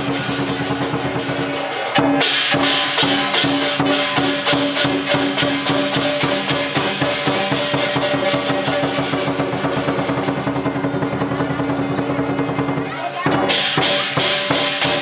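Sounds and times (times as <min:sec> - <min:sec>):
drum and cymbals fast beat: 0:00.0 - 0:15.0.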